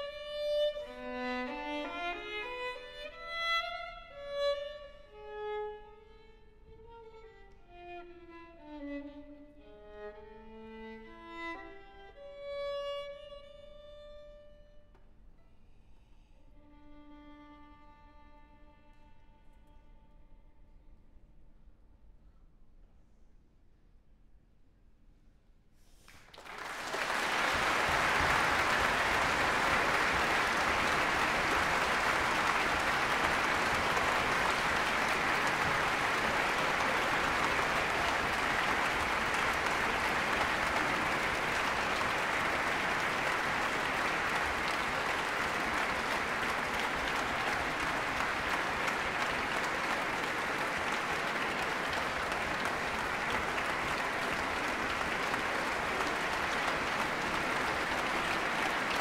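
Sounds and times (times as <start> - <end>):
audience applauding: 26.1 - 59.0.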